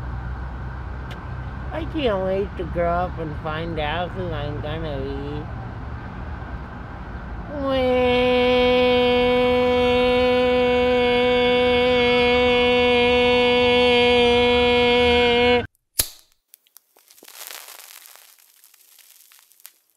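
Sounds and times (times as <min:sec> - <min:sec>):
man wailing cry: 0:07.5 - 0:15.7
faint crackling: 0:16.5 - 0:19.9.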